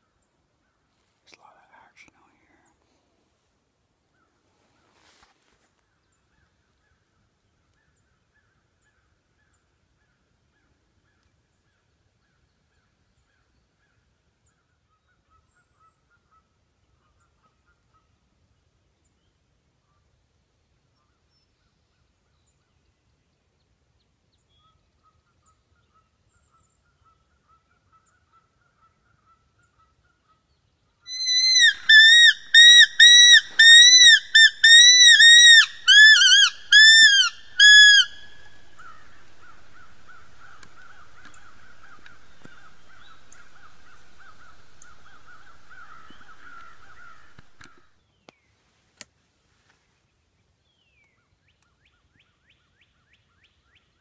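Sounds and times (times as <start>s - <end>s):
predator call squealing cries: 31.1s - 47.7s
click: 40.5s - 41.4s, 42.0s - 42.6s, 47.3s - 47.8s.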